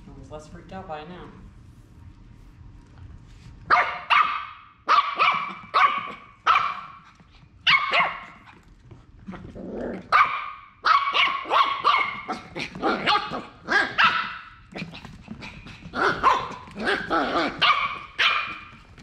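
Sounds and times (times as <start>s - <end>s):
puppy yappy barks: 3.7s - 7.0s, 7.7s - 8.4s, 10.1s - 14.6s, 16.0s - 18.8s
puppy low growl: 9.2s - 10.1s, 14.7s - 17.6s.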